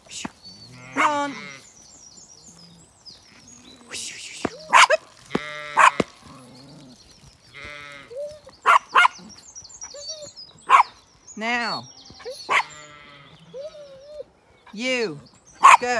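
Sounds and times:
small birds chirping faintly: 0:00.0 - 0:15.9
sheep and lambs bleating: 0:00.5 - 0:01.9, 0:02.5 - 0:03.8, 0:04.4 - 0:09.4, 0:11.6 - 0:13.8.

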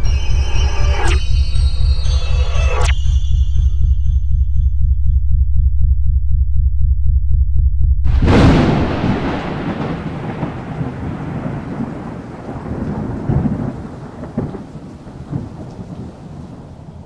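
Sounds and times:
thunder rolling: 0:08.0 - 0:17.0
steady rain: 0:08.1 - 0:17.0.

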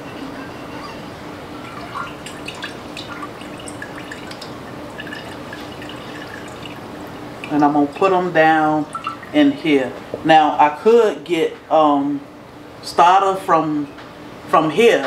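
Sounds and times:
liquid dripping into a jar: 0:01.8 - 0:07.6.

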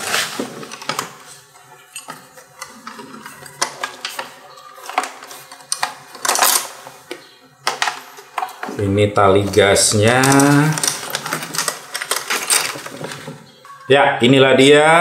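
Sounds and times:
plastic wrapping rustling: 0:00.0 - 0:13.8
parts clicking and tapping: 0:00.6 - 0:08.8, 0:10.0 - 0:13.8.

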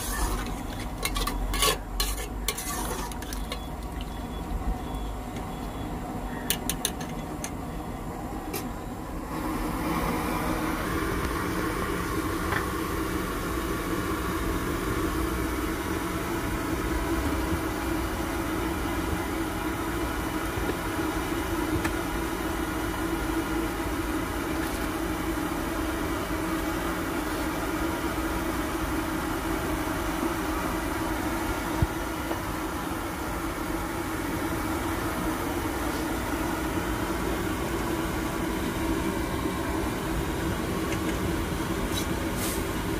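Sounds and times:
vehicle running noise: 0:00.0 - 0:26.0.

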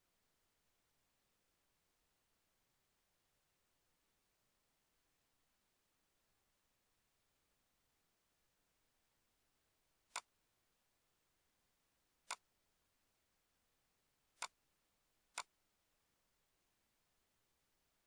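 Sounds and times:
computer mouse clicks: 0:10.1 - 0:10.3, 0:14.4 - 0:14.6.

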